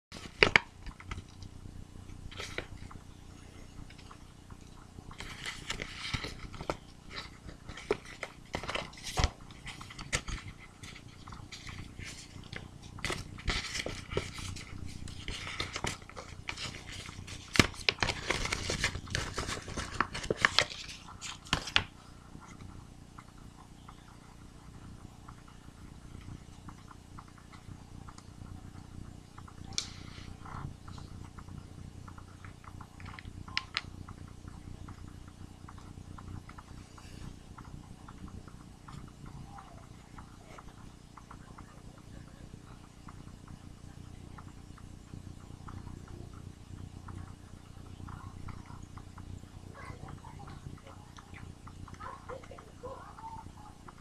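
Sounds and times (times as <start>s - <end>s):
envelope crinkling and rustling: 0.2s - 1.5s, 2.3s - 3.0s, 5.1s - 22.6s.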